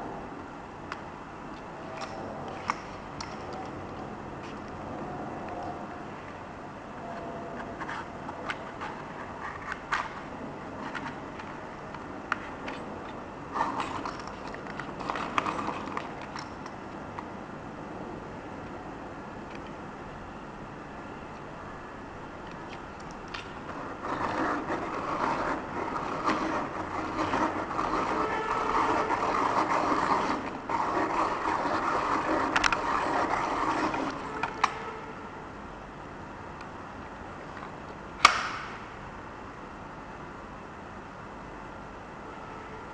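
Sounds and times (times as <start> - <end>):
pencil sharpener clicking and scraping: 23.7 - 34.8.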